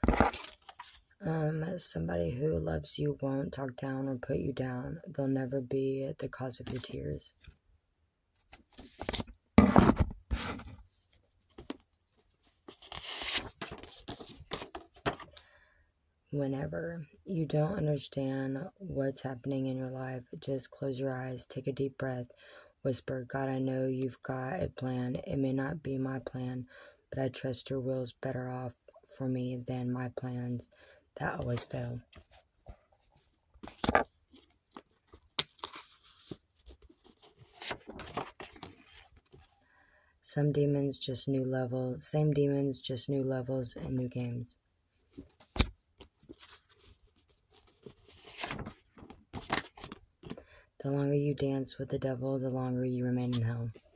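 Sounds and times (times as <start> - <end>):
cards riffled with papery rustle: 0.0 - 1.1, 8.5 - 15.4, 31.5 - 39.5, 45.1 - 50.6.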